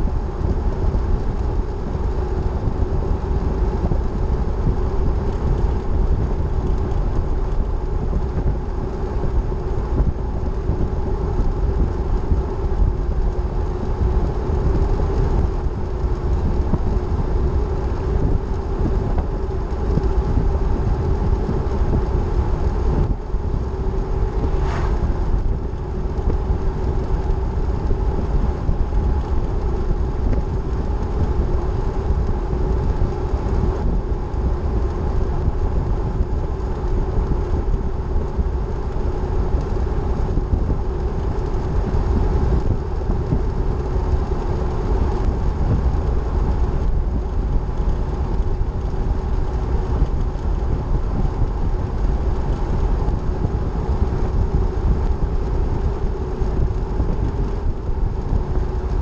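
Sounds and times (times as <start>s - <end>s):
engine drone: 0.0s - 59.0s
road and wind noise: 0.0s - 59.0s
vehicle passing whoosh: 23.8s - 26.0s.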